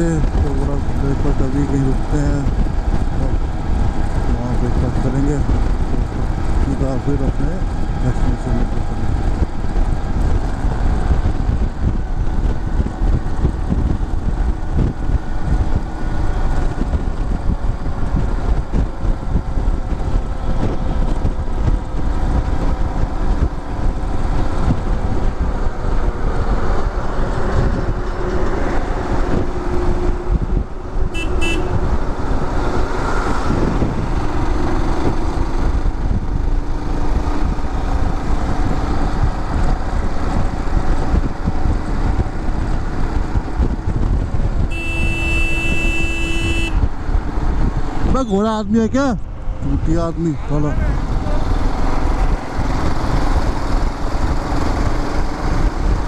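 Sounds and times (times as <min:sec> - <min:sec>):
motorcycle engine running: 0:00.0 - 0:48.3
surrounding traffic: 0:00.0 - 0:56.0
wind rumble on microphone: 0:00.0 - 0:56.0
vehicle horn: 0:31.1 - 0:32.0, 0:44.7 - 0:46.9.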